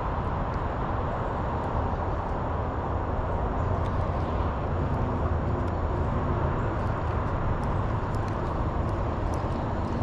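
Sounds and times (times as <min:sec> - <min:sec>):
road traffic rumble: 0:00.0 - 0:10.0
faint ticks: 0:06.7 - 0:10.0.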